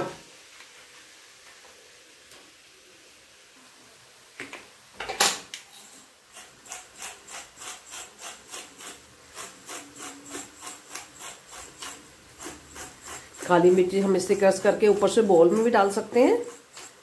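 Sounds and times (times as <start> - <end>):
pepper mill grinding: 5.7 - 17.0.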